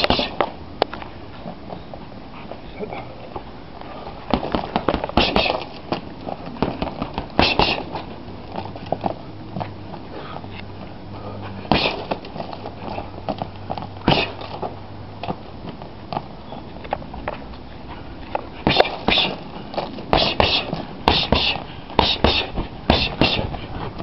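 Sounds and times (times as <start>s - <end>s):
punches thudding on heavy bag: 4.3s - 5.6s, 11.7s - 12.2s, 14.0s - 14.5s, 18.6s - 19.4s, 20.1s - 23.5s.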